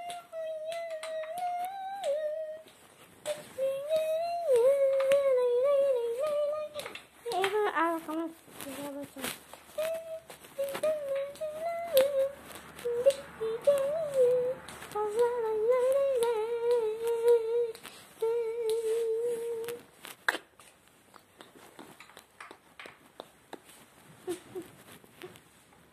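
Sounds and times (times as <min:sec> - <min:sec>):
person humming: 0:00.0 - 0:19.9, 0:24.2 - 0:25.4
faint clicks and taps: 0:06.1 - 0:25.9.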